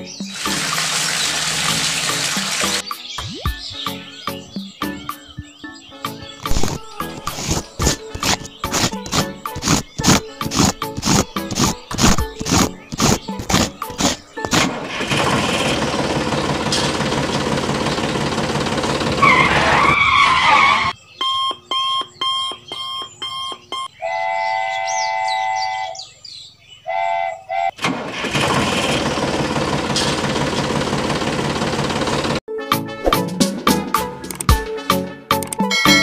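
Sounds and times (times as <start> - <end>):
vehicle engine running: 6.5 - 19.6, 28.5 - 32.4
multi-tone horn: 26.9 - 27.8.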